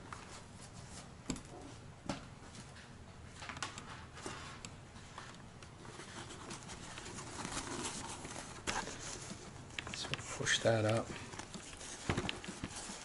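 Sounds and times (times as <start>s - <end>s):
soft rustling: 3.9s - 13.0s.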